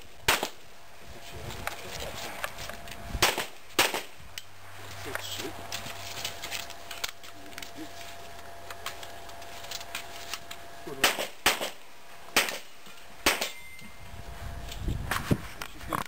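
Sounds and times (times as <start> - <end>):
handgun shots: 3.2 - 4.1, 11.0 - 13.6.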